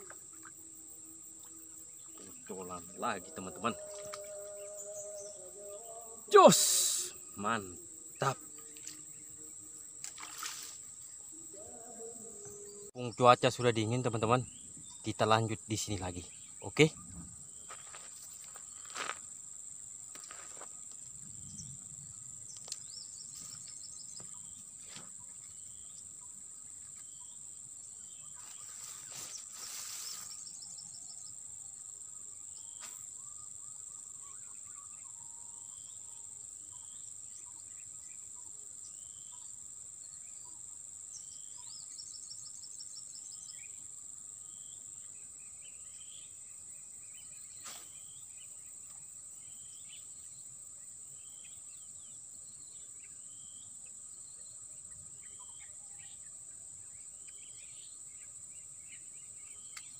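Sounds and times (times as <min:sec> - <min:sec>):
bird chirps: 0:00.0 - 0:18.0
high-pitched insect drone: 0:00.0 - 0:19.4, 0:28.4 - 0:31.3.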